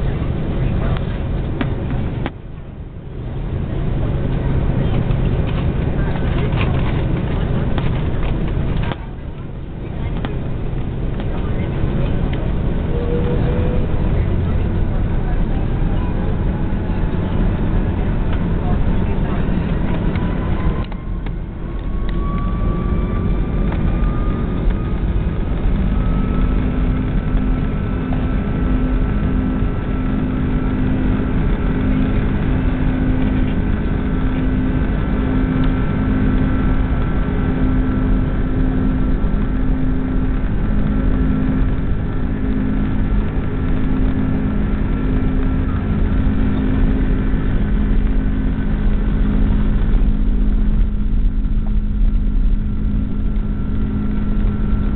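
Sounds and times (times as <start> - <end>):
jet engines roaring at takeoff: 0.0 - 54.9
rising engine whine: 0.0 - 54.9.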